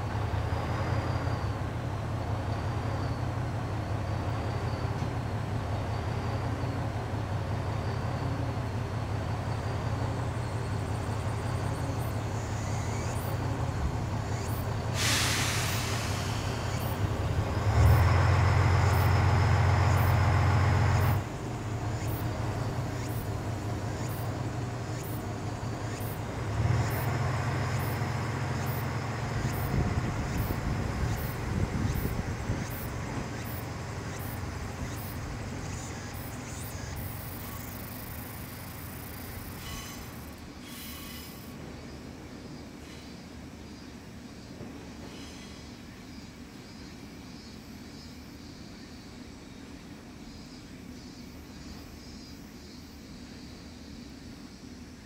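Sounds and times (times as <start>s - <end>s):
air brakes hissing: 14.7s - 17.5s, 39.3s - 41.6s, 45.0s - 45.9s.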